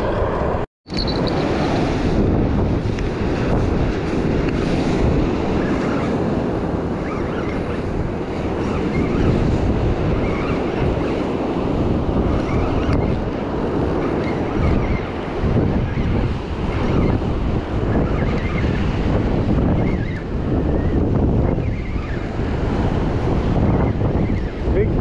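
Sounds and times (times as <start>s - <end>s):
wind buffeting microphone: 0.0s - 25.0s
surf breaking on beach: 1.3s - 7.1s.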